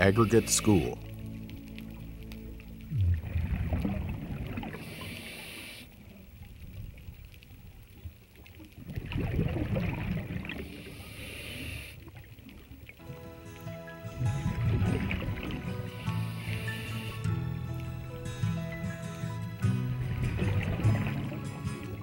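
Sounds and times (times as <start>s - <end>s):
exhaled bubbles gurgling underwater: 2.1s - 13.0s, 14.2s - 17.2s, 20.0s - 22.0s
regulator hiss on inhale: 4.7s - 6.0s, 10.6s - 12.0s, 15.9s - 17.3s.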